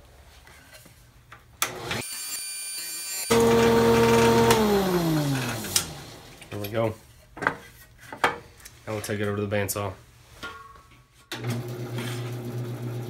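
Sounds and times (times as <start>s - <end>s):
jointer motor whining: 1.6s - 6.5s, 11.4s - 13.0s.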